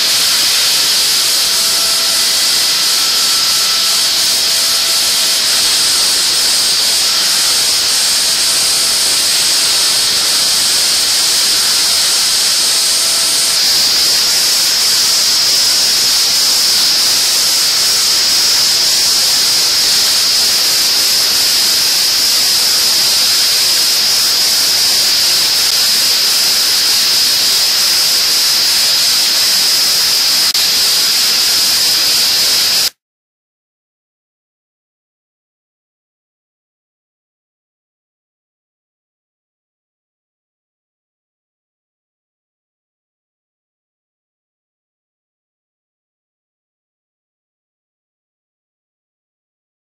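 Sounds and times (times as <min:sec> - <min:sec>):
air blow hissing: 0:00.0 - 0:33.0
high-pitched spindle whine: 0:00.0 - 0:33.0.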